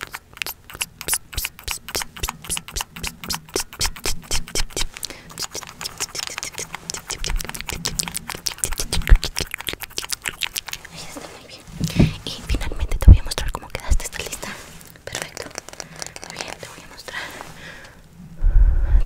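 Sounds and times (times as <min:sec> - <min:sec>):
fast tapping and clicking: 0:00.0 - 0:10.9, 0:15.1 - 0:16.6
scratching: 0:00.0 - 0:17.6.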